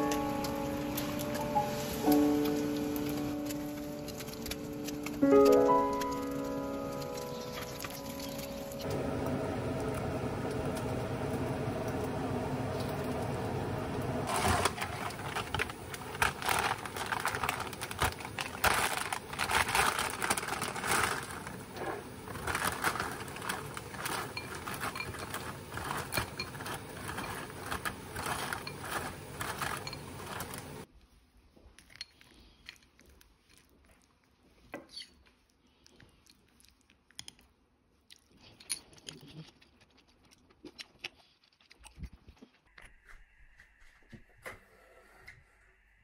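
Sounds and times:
cereal clattering into a bowl: 14.3s - 21.6s, 22.2s - 30.8s
plastic bag crinkling: 14.3s - 30.9s.

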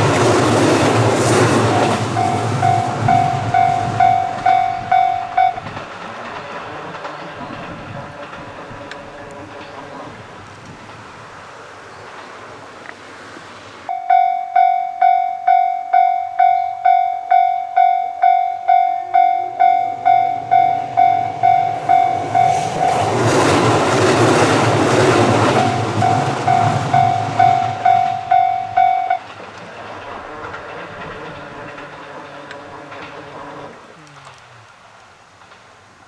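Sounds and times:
loud rushing rumble: 0.0s - 11.2s, 19.9s - 33.1s
level-crossing warning bell: 1.5s - 5.8s, 13.9s - 23.2s, 25.3s - 29.3s.

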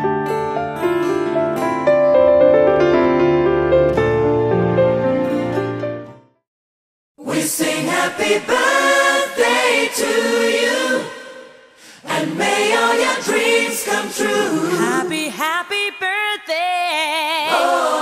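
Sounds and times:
choir-like group singing: 7.2s - 15.3s, 17.4s - 18.0s.

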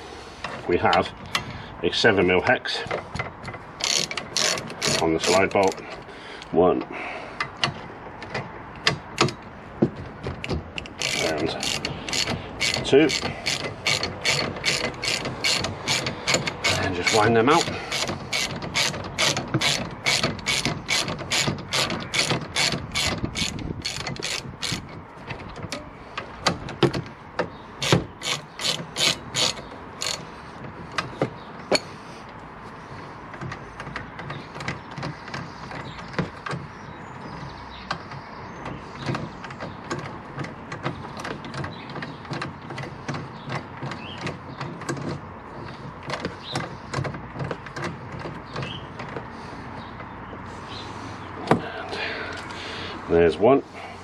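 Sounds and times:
ratchet wrench clicking: 3.8s - 5.5s, 10.8s - 24.9s, 27.8s - 30.2s.

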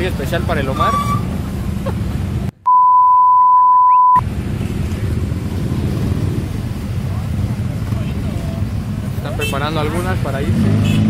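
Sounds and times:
electronic beep: 2.7s - 4.2s
motorcycles idling: 4.3s - 11.0s.

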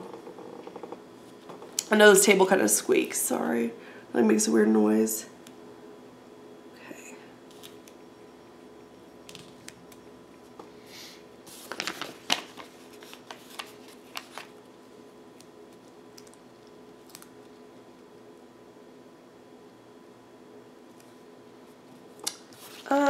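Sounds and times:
faint steady hum: 0.0s - 23.0s
paper and stickers crinkling and tapping: 11.5s - 14.6s, 15.4s - 17.6s.

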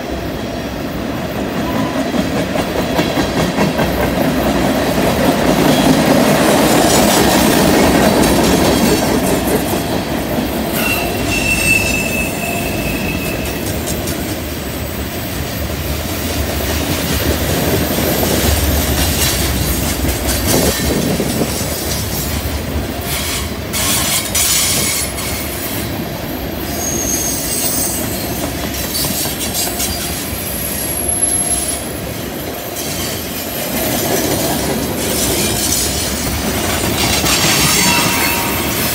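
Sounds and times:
train wheels clattering on rail: 0.0s - 38.9s
high-pitched wheel squeals: 10.8s - 13.8s, 26.3s - 28.3s.

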